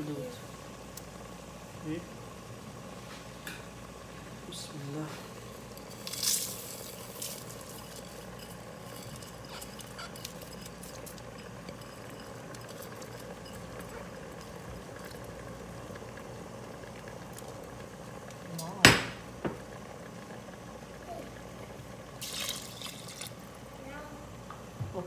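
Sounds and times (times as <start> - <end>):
rice grains pattering: 4.7 - 18.5, 22.2 - 23.5
rice pouring into pot: 5.5 - 18.2, 22.2 - 23.6.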